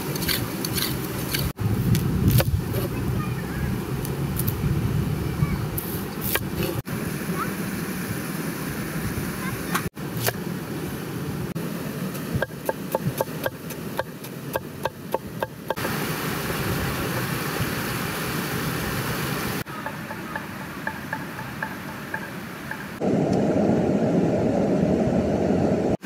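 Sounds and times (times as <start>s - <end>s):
river water flowing: 6.8s - 23.0s.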